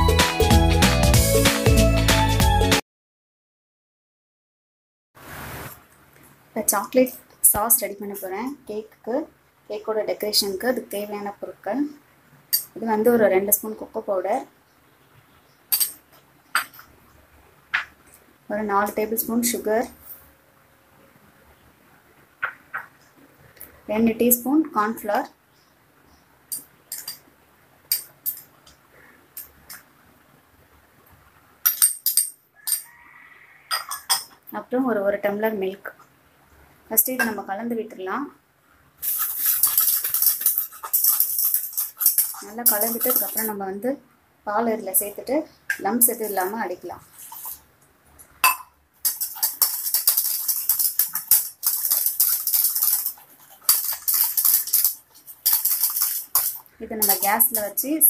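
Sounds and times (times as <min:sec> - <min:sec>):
spoon clinking glass bowl: 0:26.5 - 0:27.2, 0:27.9 - 0:28.5, 0:31.6 - 0:33.0, 0:33.7 - 0:34.4, 0:39.0 - 0:43.5, 0:48.4 - 0:57.8.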